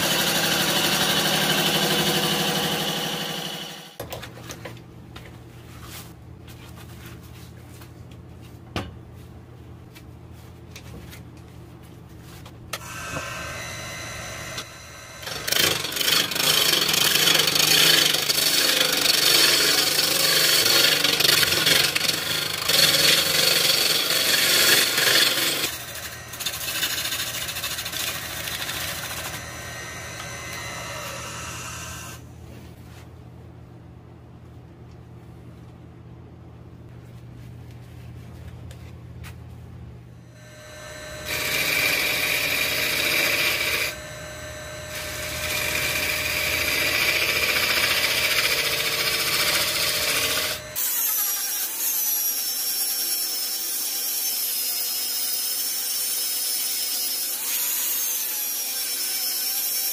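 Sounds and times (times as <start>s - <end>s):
turning tool cutting wood: 0.0s - 4.0s, 12.8s - 32.2s, 40.4s - 59.9s
lathe motor humming: 12.8s - 32.2s, 40.4s - 50.8s.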